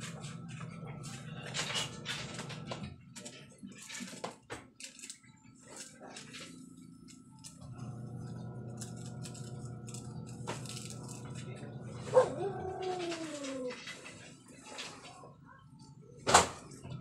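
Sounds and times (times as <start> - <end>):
dog howling: 11.9 - 14.2.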